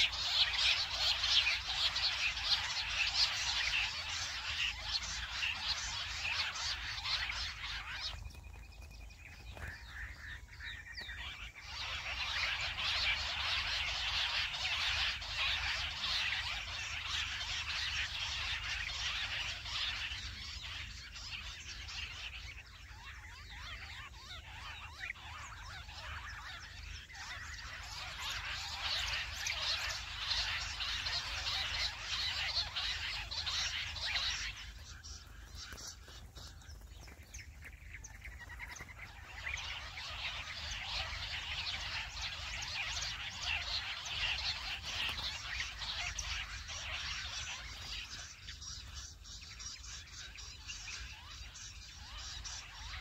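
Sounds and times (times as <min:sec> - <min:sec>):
quail chorus calling: 0:00.0 - 0:53.0.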